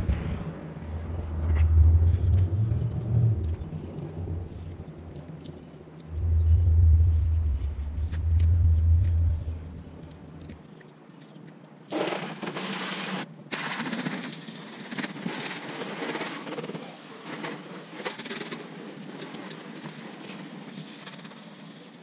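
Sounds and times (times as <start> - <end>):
low rumble: 0.0 - 10.6.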